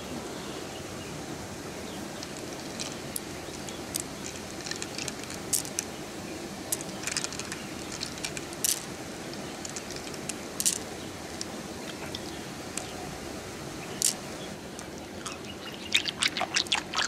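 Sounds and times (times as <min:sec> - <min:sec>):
flowing water: 0:00.0 - 0:17.0
pearls clicking together: 0:02.2 - 0:05.9, 0:06.7 - 0:11.5, 0:14.0 - 0:14.2.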